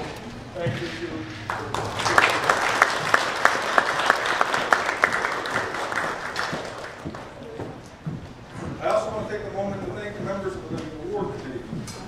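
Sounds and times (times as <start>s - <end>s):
close person clapping: 1.4s - 7.4s
audience applauding: 1.4s - 7.6s.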